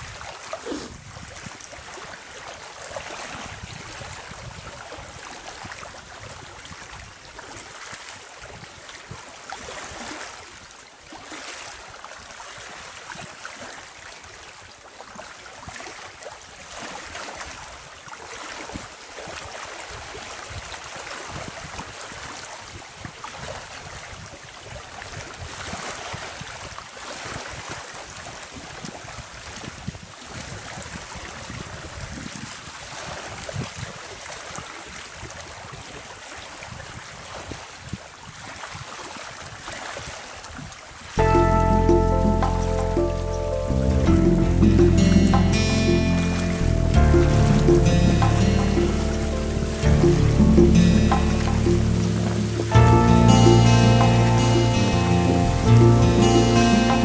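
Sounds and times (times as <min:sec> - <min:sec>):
small waves lapping: 0:00.0 - 0:41.2
wind: 0:00.0 - 0:57.0.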